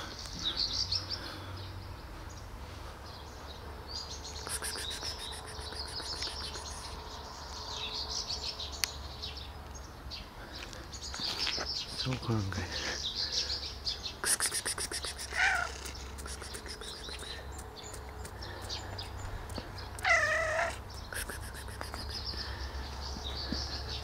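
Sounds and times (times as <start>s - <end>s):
cat meowing: 15.3s - 15.8s, 20.0s - 20.8s.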